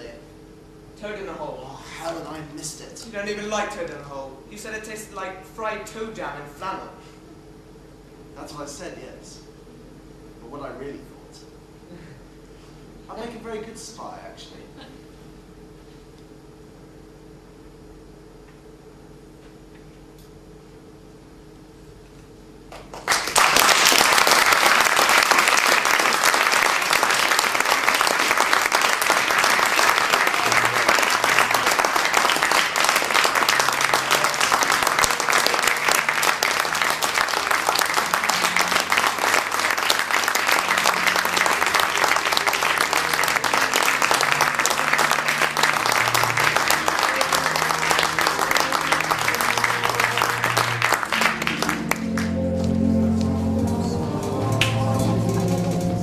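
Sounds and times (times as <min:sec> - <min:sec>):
audience applauding: 0:22.7 - 0:53.7, 0:54.4 - 0:56.0
music playing: 0:24.2 - 0:56.0.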